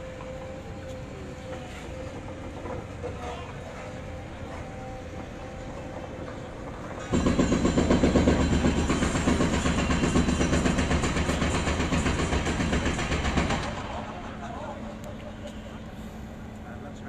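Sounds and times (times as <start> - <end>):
loud mechanical rattle: 1.4 - 14.5.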